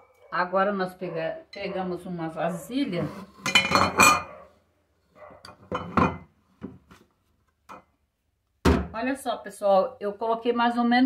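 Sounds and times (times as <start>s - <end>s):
kitchenware clinking and knocking: 3.4s - 4.4s, 5.4s - 6.8s, 7.7s - 7.9s.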